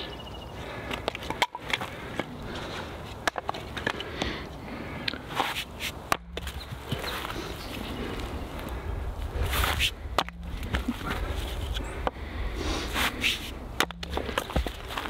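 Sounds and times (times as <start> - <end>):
firewood knocks and clicks: 3.2 - 4.3
footsteps: 9.4 - 11.9.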